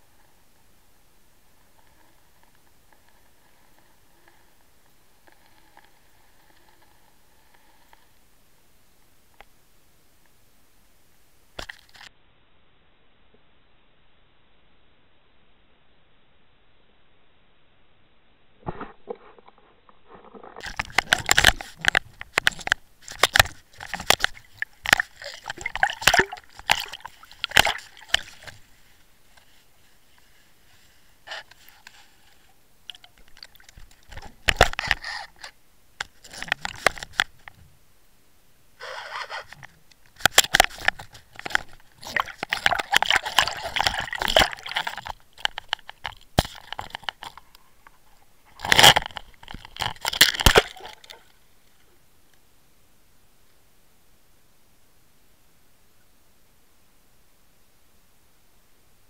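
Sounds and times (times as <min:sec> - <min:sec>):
water sloshing: 0:20.5 - 0:29.4, 0:40.3 - 0:51.3.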